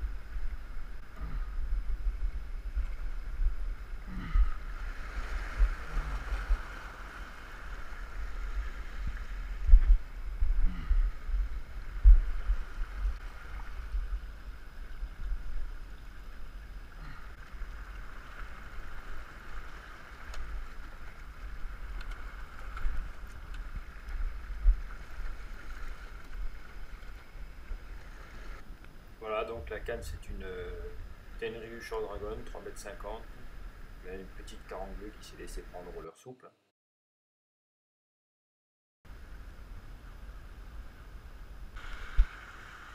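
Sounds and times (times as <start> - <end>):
wind buffeting microphone: 0.0 - 15.9
small waves breaking on rocks: 4.6 - 10.1, 11.2 - 35.1, 41.8 - 42.9.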